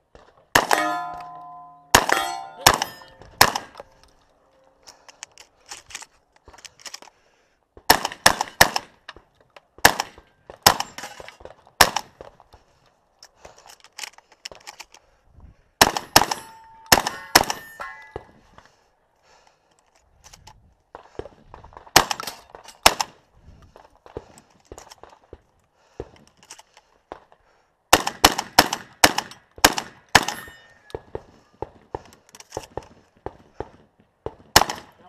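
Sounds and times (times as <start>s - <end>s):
shotgun shots: 0.5s - 3.8s, 7.9s - 8.9s, 9.8s - 11.0s, 11.8s - 12.1s, 15.8s - 17.8s, 27.9s - 30.5s, 34.4s - 35.0s
steel targets ringing: 0.6s - 3.4s, 16.2s - 18.3s, 30.2s - 30.9s.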